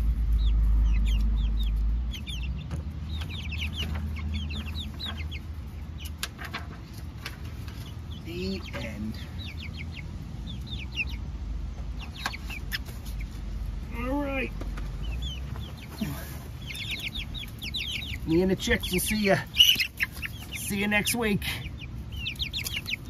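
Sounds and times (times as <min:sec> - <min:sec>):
low rumble: 0:00.0 - 0:06.3
chicks peeping: 0:00.0 - 0:23.0.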